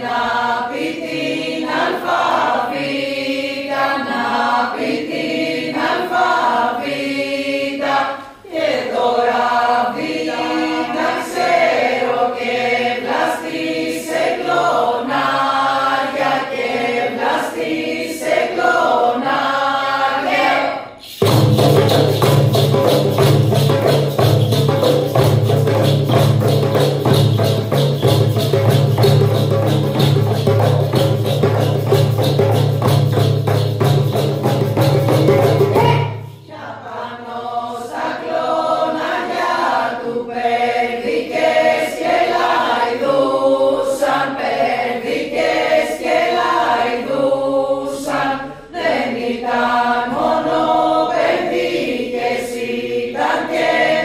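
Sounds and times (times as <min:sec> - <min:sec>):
group singing in two parts: 0:00.0 - 0:54.0
hand frame drums beating: 0:21.1 - 0:36.2.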